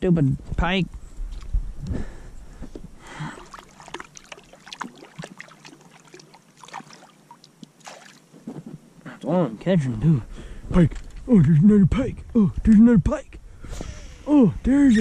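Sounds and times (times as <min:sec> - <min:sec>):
water lapping against boat: 0:03.1 - 0:08.3
small splashes: 0:03.2 - 0:08.4.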